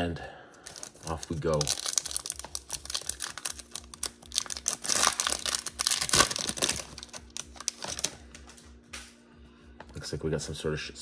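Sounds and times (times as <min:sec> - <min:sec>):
wrapper crinkling and tearing: 0:00.6 - 0:08.2.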